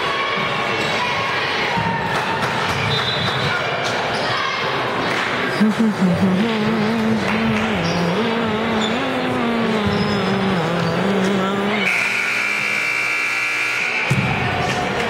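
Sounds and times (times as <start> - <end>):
scoreboard horn buzzing: 6.7 - 14.2.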